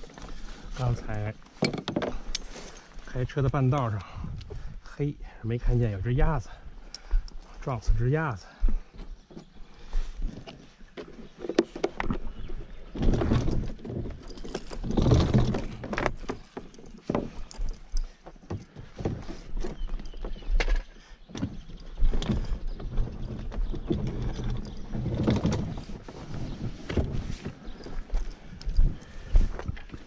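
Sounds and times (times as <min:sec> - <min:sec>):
kayak knocking and scraping on concrete: 0:10.3 - 0:17.5.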